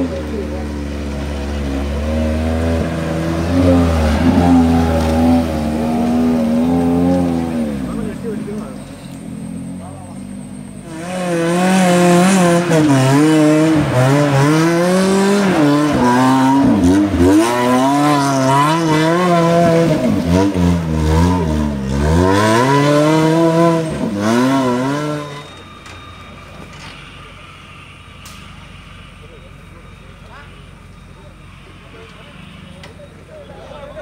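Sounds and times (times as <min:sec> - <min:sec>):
off-road vehicle engine revving: 0:00.0 - 0:25.7.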